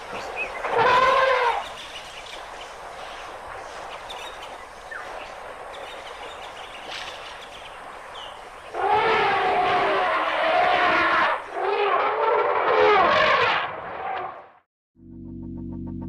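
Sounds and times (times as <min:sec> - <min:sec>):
steady outdoor hiss: 0:00.0 - 0:11.6
elephant trumpeting: 0:00.6 - 0:01.6, 0:08.7 - 0:14.4.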